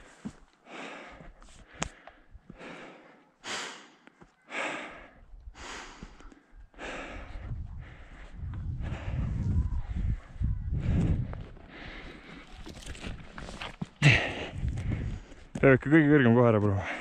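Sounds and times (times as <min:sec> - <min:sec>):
heavy rhythmic breathing: 0:00.0 - 0:13.1.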